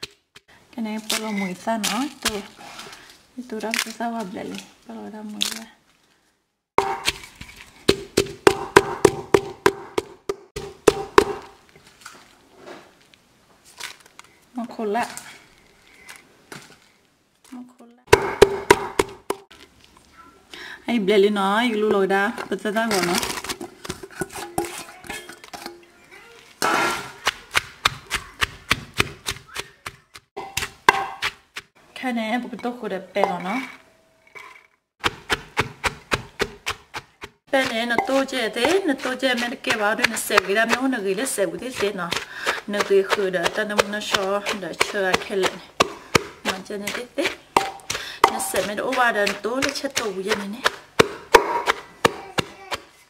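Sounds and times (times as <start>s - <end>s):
pestle knocking in mortar: 6.8s - 11.6s, 18.1s - 19.5s, 23.4s - 25.8s, 27.2s - 31.7s, 35.0s - 52.9s.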